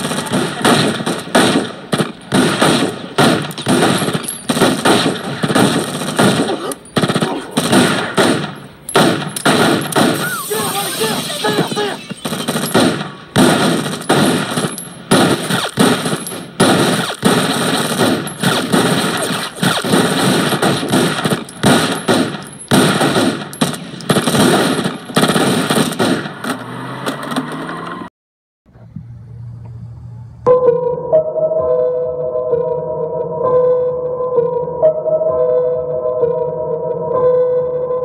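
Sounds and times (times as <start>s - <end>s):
sharp bangs and cracks: 0.0s - 28.0s.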